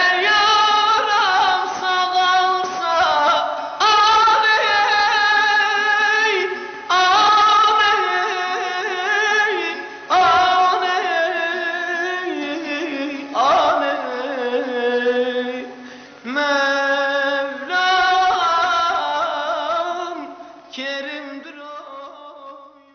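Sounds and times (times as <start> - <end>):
man singing folk lament: 0.0 - 22.9.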